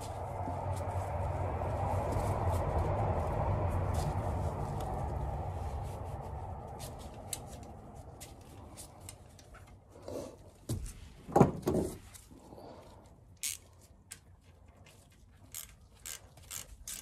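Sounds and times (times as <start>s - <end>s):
rustle of handling: 0.0s - 11.2s.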